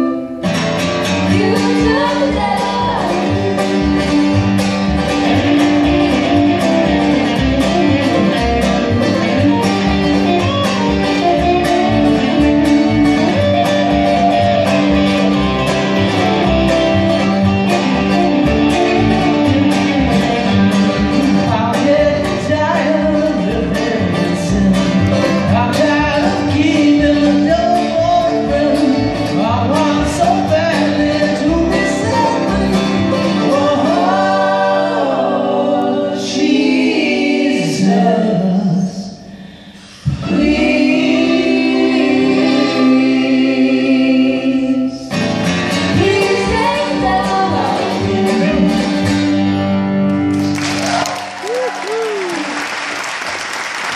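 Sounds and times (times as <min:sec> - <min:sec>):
electric guitar picking: 0:00.0 - 0:34.9, 0:45.2 - 0:50.6
upright bass: 0:00.0 - 0:52.5.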